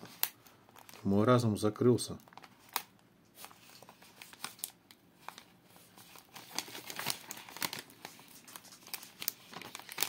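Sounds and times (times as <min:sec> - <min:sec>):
plastic snack bag crinkling: 0:02.2 - 0:10.0.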